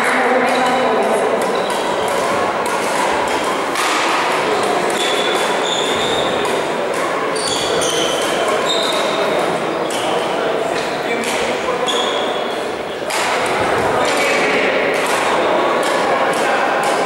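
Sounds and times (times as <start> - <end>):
reverberant murmur: 0.0 - 17.0
shuttlecock hits: 0.5 - 12.2, 13.0 - 17.0
shoes squeaking on court: 4.9 - 6.6, 7.2 - 10.2, 11.8 - 13.0.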